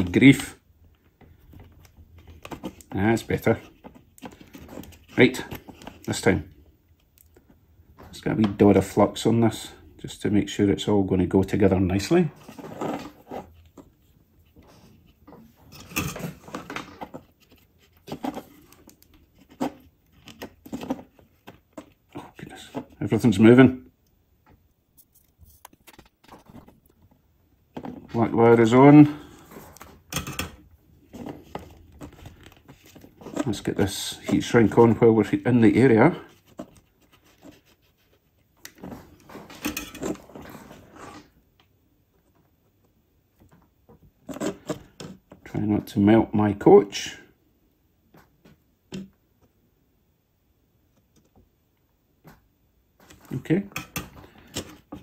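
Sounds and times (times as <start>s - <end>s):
small clicks and rustles of wires: 0.8s - 8.6s, 12.4s - 23.4s, 24.0s - 28.4s, 36.2s - 45.6s, 50.8s - 55.0s.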